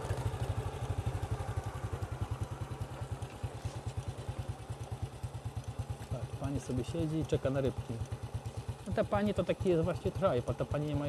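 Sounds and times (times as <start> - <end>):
small motorbike engine putter: 2.3 - 10.2.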